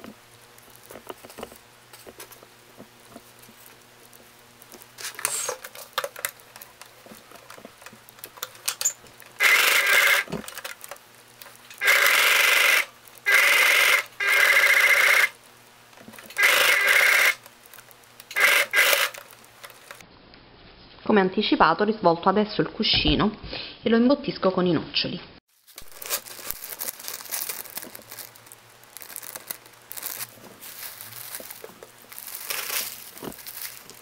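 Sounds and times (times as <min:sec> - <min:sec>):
sewing machine stitching: 0:09.4 - 0:10.4, 0:11.8 - 0:15.3, 0:16.4 - 0:17.4, 0:18.3 - 0:19.2
fabric rustling: 0:25.5 - 0:34.0.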